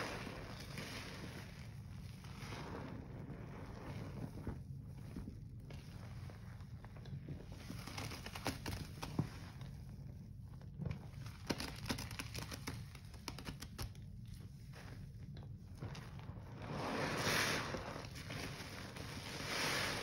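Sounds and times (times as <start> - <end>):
wet squelch: 0.0 - 9.9
hands squishing wet foam: 0.0 - 20.0.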